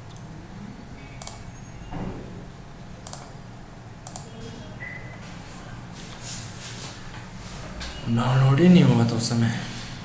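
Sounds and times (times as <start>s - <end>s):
computer mouse clicking: 0.1s - 0.3s, 1.2s - 1.5s, 3.0s - 3.4s, 4.0s - 4.3s.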